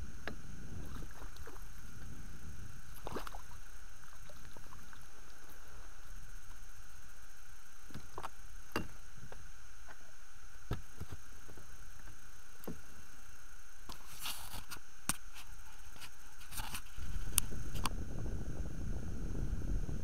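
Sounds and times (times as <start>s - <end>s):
wind on microphone: 0.0s - 3.6s, 16.5s - 20.0s
faint whine: 0.0s - 20.0s.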